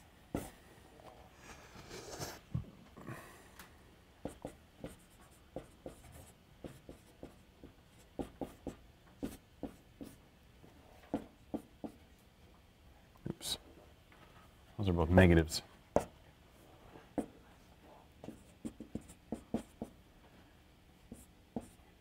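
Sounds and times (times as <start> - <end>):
marker writing on whiteboard: 0.3 - 0.5, 4.2 - 10.2, 11.0 - 12.0, 18.2 - 20.0, 21.1 - 21.8.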